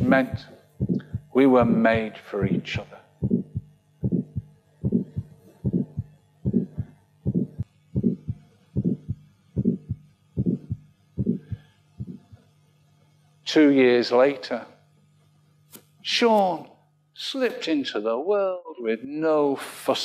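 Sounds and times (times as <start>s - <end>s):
heartbeat thumps: 0.0s - 12.4s
faint low hum: 0.0s - 20.0s.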